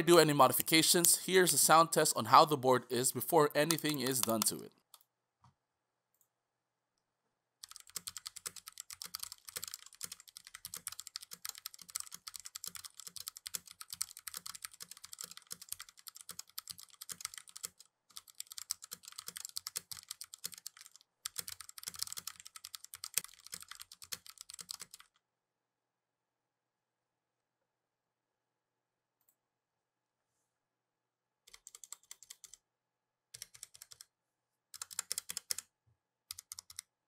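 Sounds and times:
mechanical keyboard key clacks: 34.8 - 35.6.

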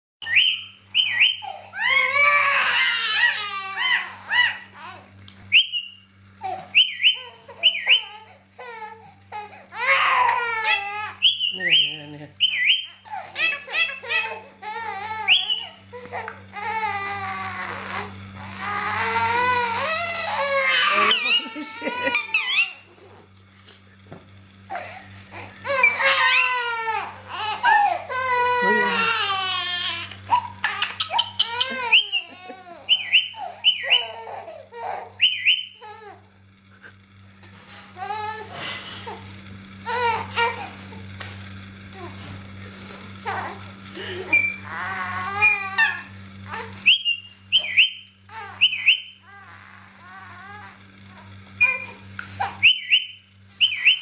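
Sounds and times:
parakeet squawking: 0.2 - 4.6, 5.5 - 6.0, 6.7 - 8.1, 11.2 - 14.3, 15.2 - 15.8, 19.8 - 22.8, 30.6 - 34.2, 35.2 - 35.8, 44.3 - 46.1, 46.8 - 49.2, 52.6 - 54.0
baby fussing and crying: 8.1 - 11.2, 13.1 - 22.4, 24.7 - 35.2.

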